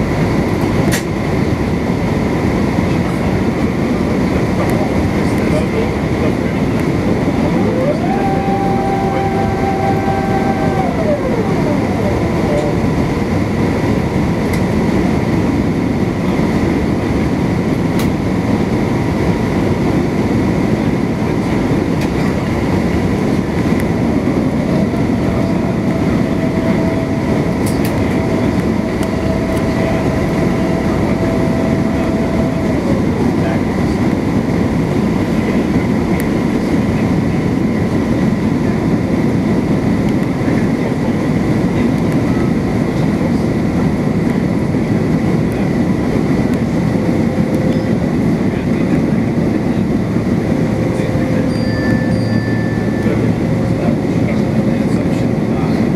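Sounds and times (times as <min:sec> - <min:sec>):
airliner cabin drone: 0:00.0 - 0:55.9
thin steady whine: 0:00.0 - 0:55.9
higher tone: 0:07.2 - 0:14.2, 0:23.4 - 0:33.8, 0:49.8 - 0:54.6.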